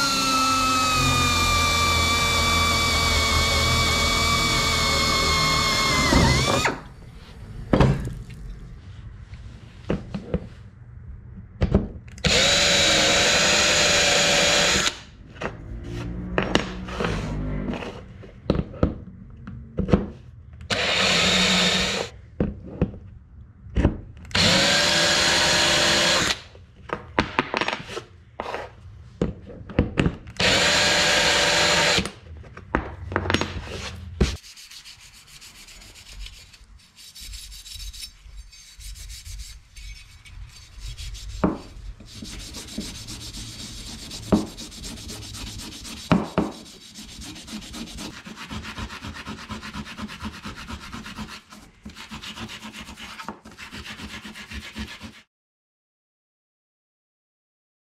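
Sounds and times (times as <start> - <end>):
cordless drill cutting metal: 0.0 - 6.8, 12.2 - 15.0, 20.7 - 22.1, 24.3 - 26.4, 30.4 - 32.1.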